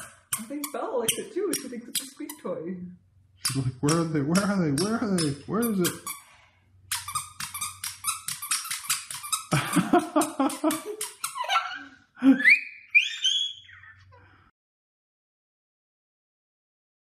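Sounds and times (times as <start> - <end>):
dog high rising squeaks: 11.1 - 14.1.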